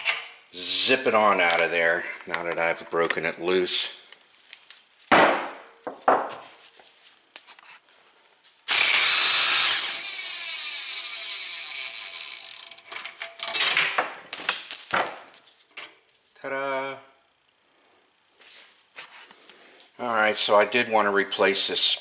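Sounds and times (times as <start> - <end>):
cordless power tool running: 8.7 - 12.7
freewheel clicking: 9.9 - 12.9.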